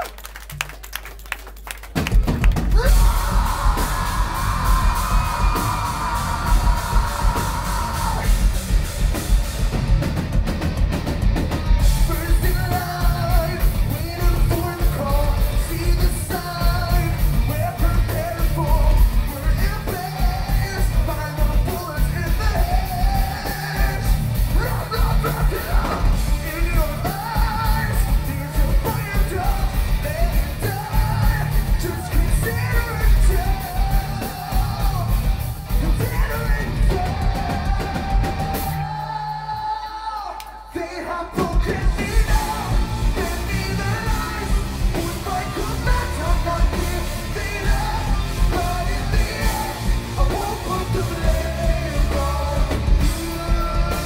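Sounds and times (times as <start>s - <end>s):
drum kit: 0.0s - 54.0s
bass guitar: 1.8s - 39.2s, 41.4s - 54.0s
electric guitars: 2.4s - 39.0s, 41.5s - 54.0s
singer singing and yelling: 2.6s - 54.0s.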